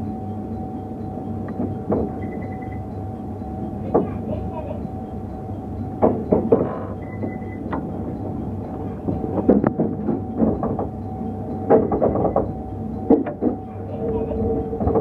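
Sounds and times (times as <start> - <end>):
train running rumble and hum: 0.0 - 15.0
wheels clacking over rail joints: 6.0 - 15.0.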